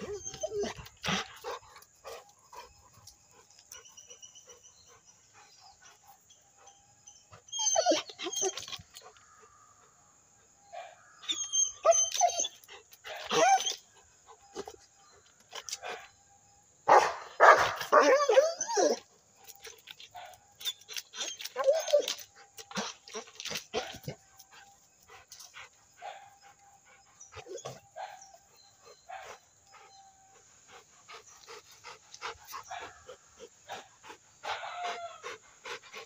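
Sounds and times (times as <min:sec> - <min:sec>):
dog barking and whining: 0:00.0 - 0:02.7, 0:07.4 - 0:09.1, 0:10.8 - 0:14.9, 0:16.9 - 0:24.6, 0:25.6 - 0:31.2.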